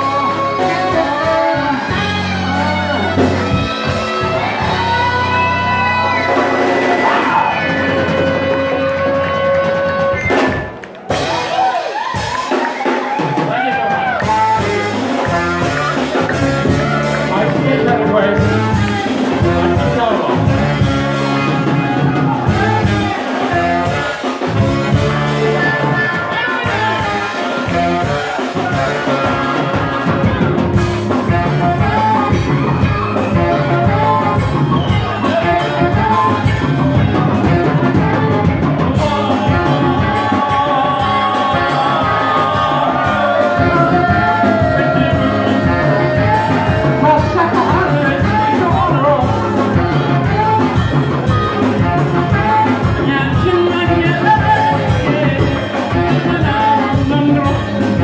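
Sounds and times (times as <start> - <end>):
man singing: 0.0 - 5.1, 14.1 - 58.0
live band music: 0.0 - 58.0.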